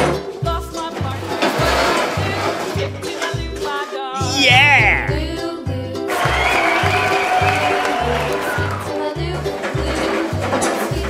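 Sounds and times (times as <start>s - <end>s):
upbeat music with bass beat: 4.2s - 5.4s.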